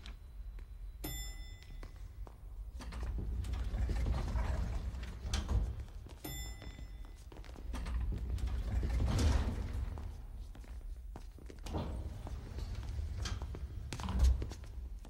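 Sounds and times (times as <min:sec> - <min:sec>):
short ringing chime: 0:01.0 - 0:02.0, 0:06.2 - 0:07.2
mechanical door sounds: 0:02.7 - 0:06.8, 0:07.6 - 0:10.4, 0:11.6 - 0:15.0.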